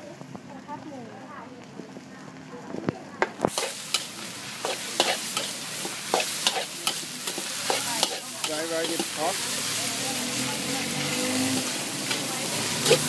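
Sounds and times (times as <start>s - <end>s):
food sizzling: 0.0s - 13.0s
metal spatula scraping a wok: 3.5s - 13.0s.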